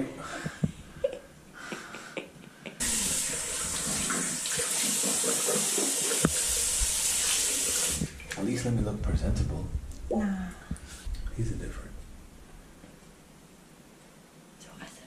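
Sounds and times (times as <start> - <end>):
water running from tap: 2.8 - 8.4.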